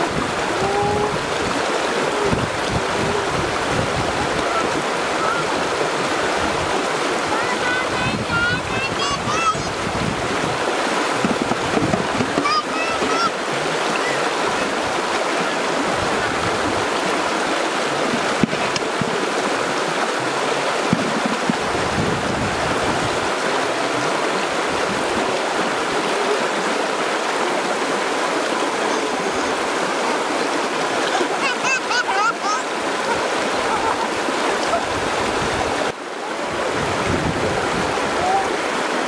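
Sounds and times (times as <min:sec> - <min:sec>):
stream rushing over rocks: 0:00.0 - 0:39.0.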